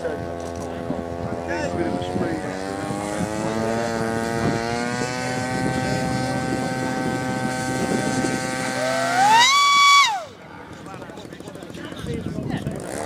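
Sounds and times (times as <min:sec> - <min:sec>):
model plane motor whining: 0:00.0 - 0:10.4.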